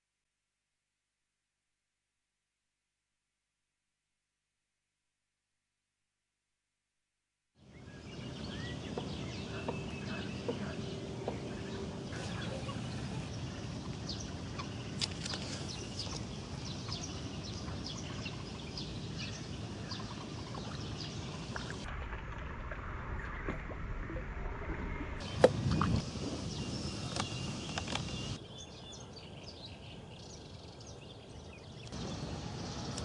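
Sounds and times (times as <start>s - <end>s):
bird chirps and calls: 7.8s - 21.7s.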